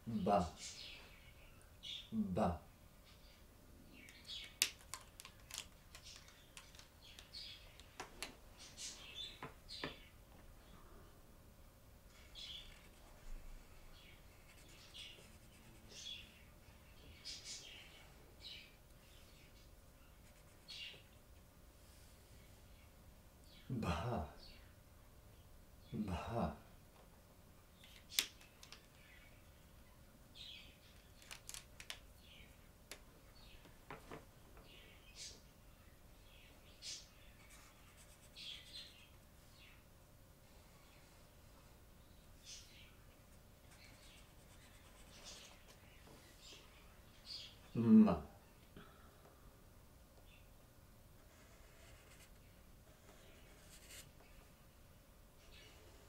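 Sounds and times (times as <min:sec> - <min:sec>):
marker pens clicking: 0:04.0 - 0:08.3, 0:27.8 - 0:28.9, 0:31.1 - 0:32.0
marker squeaking on whiteboard: 0:51.2 - 0:54.2.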